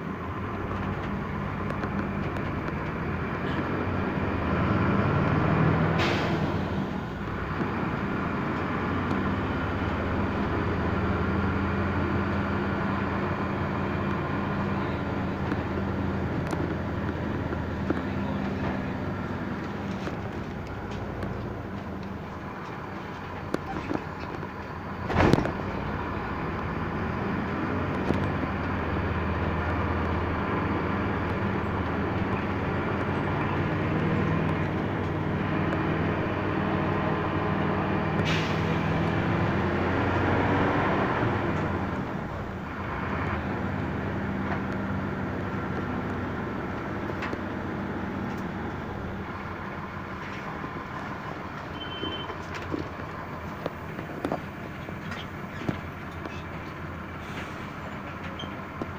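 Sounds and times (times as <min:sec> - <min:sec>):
road noise: 0:00.0 - 0:58.9
vehicle engine drone: 0:00.0 - 0:58.9
short high electronic beep: 0:51.8 - 0:52.3.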